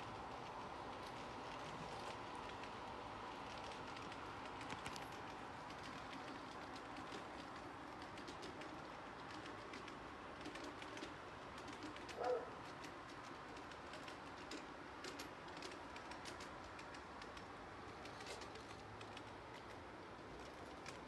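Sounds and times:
dove cooing: 12.0s - 12.6s.

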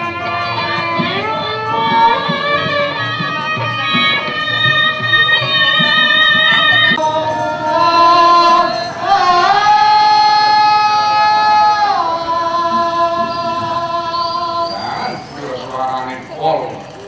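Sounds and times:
woman singing long held notes: 0.0s - 15.2s.

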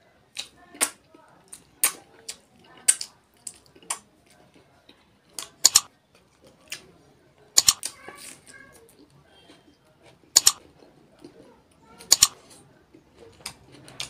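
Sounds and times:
lip smacks and chewing: 1.5s - 5.8s.

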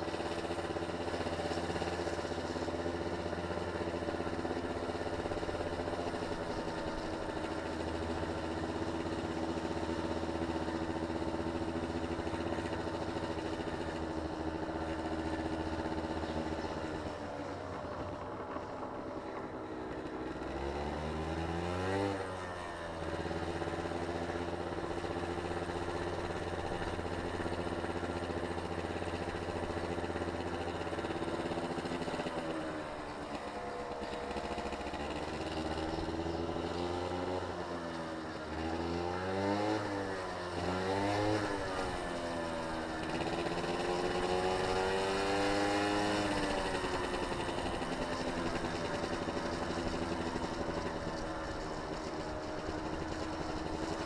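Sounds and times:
motor engine running: 0.0s - 54.0s.

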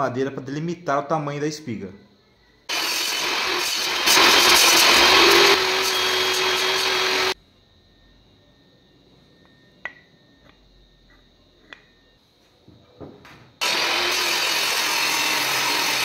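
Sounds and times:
table saw cutting wood: 2.7s - 7.4s, 13.6s - 16.0s.

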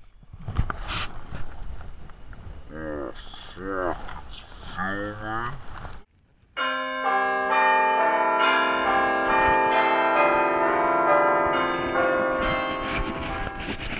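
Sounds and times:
bells chiming: 6.6s - 13.9s.

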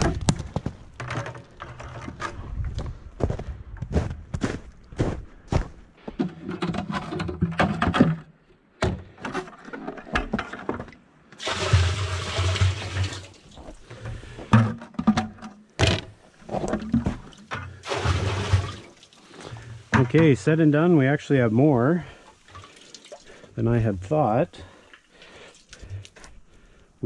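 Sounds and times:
footsteps in wet snow: 1.7s - 6.2s
liquid gushing into barrel: 11.4s - 14.5s, 16.9s - 20.4s, 21.8s - 24.0s
pails knocking: 13.9s - 20.5s.

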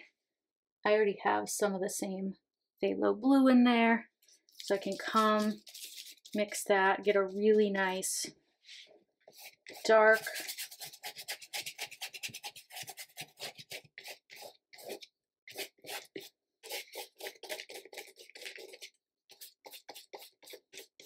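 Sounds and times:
paintbrush scrubbing on canvas: 4.3s - 6.6s, 8.7s - 21.0s.

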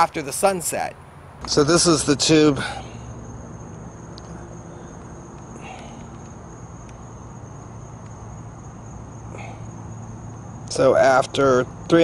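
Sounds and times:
crickets trilling: 0.0s - 12.0s
low steady hum: 0.0s - 12.0s
faint clicks: 4.1s - 7.0s.

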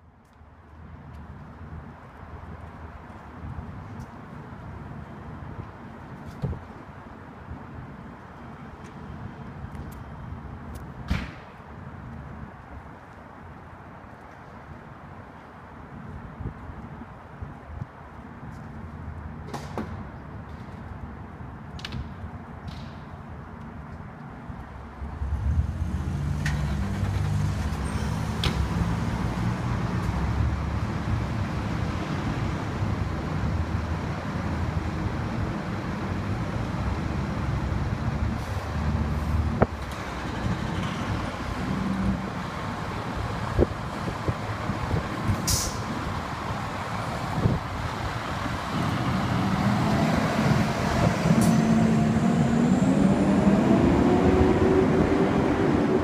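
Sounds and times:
heavy engines rumbling: 25.0s - 56.0s
air brake hiss: 45.4s - 45.9s
rising tone: 49.1s - 56.0s.

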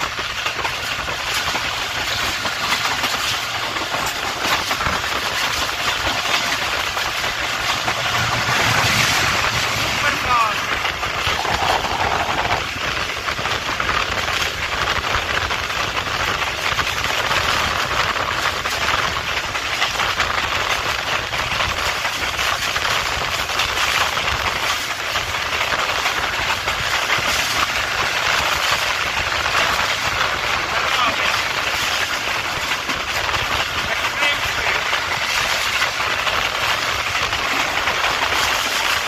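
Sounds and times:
train wheels rattling: 1.6s - 12.8s.

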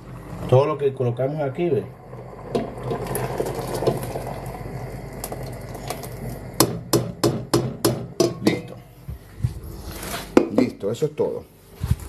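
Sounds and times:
pudding bubbling in a pot: 0.0s - 9.0s
utensil knocking against pot: 6.6s - 8.8s.

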